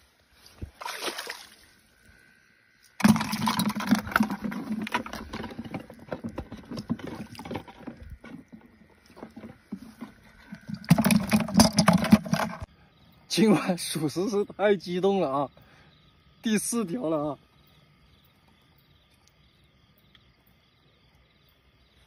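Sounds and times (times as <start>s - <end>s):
water splashing and churning: 0.6s - 2.0s, 3.0s - 12.7s.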